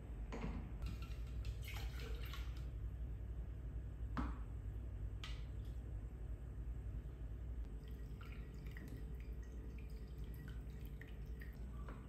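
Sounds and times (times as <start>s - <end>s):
coffee splashing through filter: 7.7s - 12.0s.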